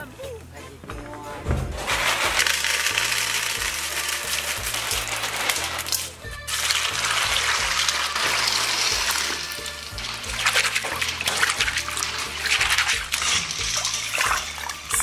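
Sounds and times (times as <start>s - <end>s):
background music: 0.0s - 15.0s
water running into metal basin: 1.8s - 15.0s
water sloshing and splashing: 4.0s - 15.0s.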